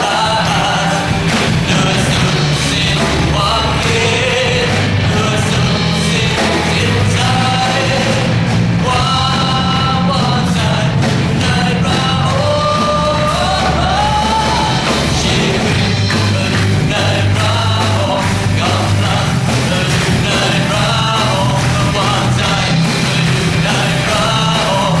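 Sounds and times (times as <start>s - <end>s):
amplified band: 0.0s - 25.0s
man singing into microphone: 0.0s - 25.0s.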